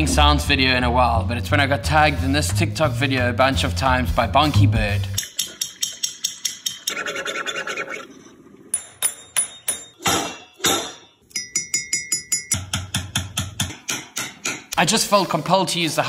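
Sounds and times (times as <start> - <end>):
beak tapping on metal pot: 5.2 - 6.9, 8.8 - 14.8
parrot beak tapping: 5.2 - 7.0.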